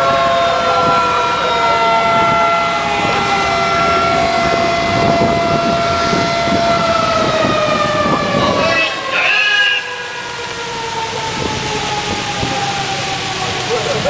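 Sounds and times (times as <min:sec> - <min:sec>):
boat engines: 0:00.0 - 0:14.0
sirens wailing: 0:00.0 - 0:14.0
water spray rushing: 0:09.7 - 0:14.0.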